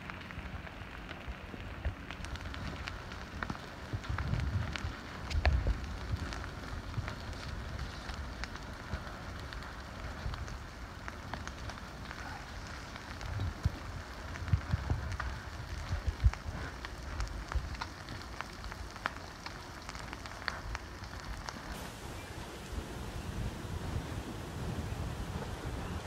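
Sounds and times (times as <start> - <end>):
lava crust crackling and clinking: 0.0 - 26.0
steady hiss: 19.6 - 26.0
low rumbles: 20.7 - 26.0.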